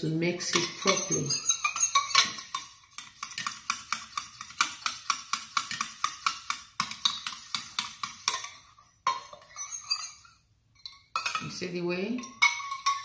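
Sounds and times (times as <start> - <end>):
stirrer clinking in metal pot: 0.4 - 13.0.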